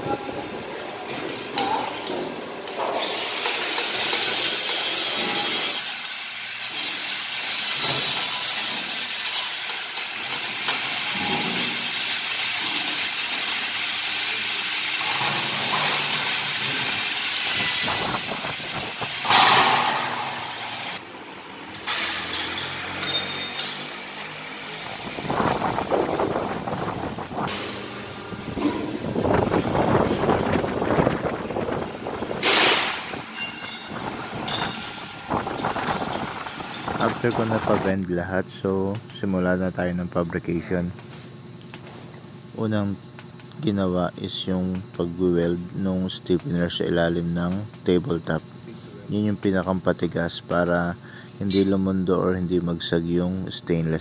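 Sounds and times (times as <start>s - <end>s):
hiss of shop machinery: 2.2s - 21.1s, 21.7s - 38.0s
clanks of steel sheet: 19.2s - 20.7s.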